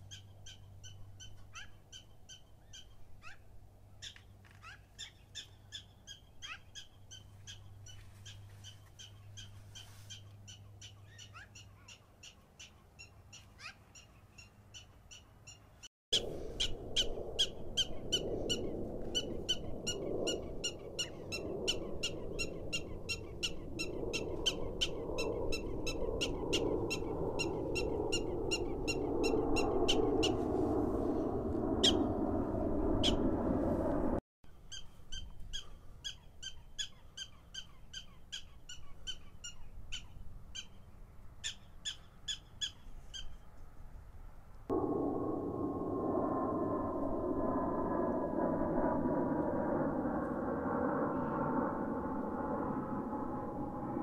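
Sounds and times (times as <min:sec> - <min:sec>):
prairie dogs barking alarm calls: 0:00.0 - 0:15.7
loud low rushing noise: 0:44.7 - 0:54.0.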